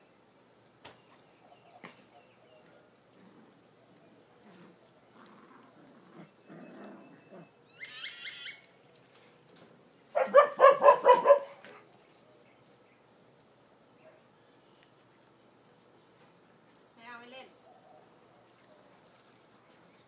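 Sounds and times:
dog barking: 10.1s - 11.8s
dog yelping: 10.2s - 11.6s.

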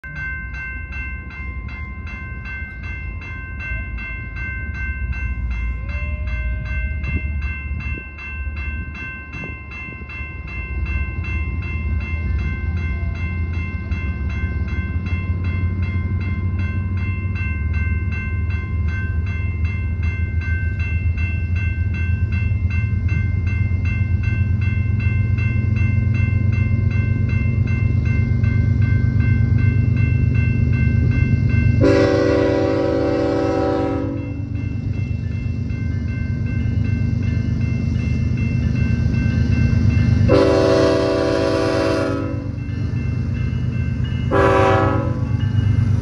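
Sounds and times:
crossing warning bell ringing: 0.0s - 46.0s
train rumble: 0.0s - 46.0s.

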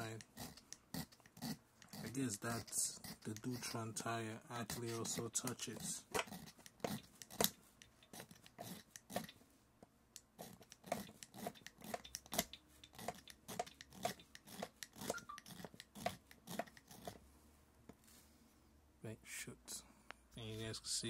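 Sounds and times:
hand file rasping on metal: 0.0s - 9.4s, 10.3s - 17.2s.

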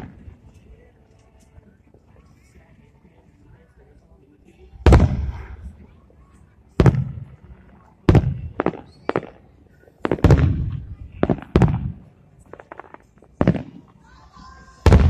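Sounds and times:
firework shells booming: 4.8s - 5.7s, 6.8s - 7.4s, 8.0s - 9.4s, 10.0s - 13.9s.

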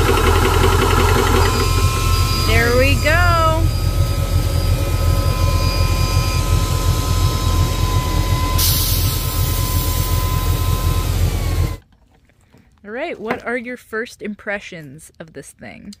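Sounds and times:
compressor pulsing drone: 0.0s - 11.8s
hiss of released air: 8.6s - 11.4s.

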